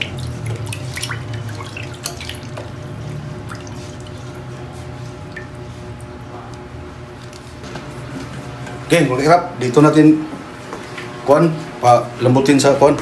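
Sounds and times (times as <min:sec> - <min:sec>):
water dripping and splashing: 0:00.0 - 0:06.2
steady low hum: 0:00.0 - 0:13.0.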